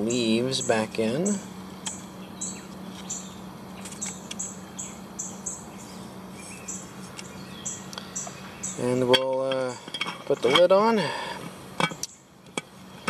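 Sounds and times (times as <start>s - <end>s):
steady low hum: 0.0s - 13.0s
leaves rustling: 1.0s - 11.7s.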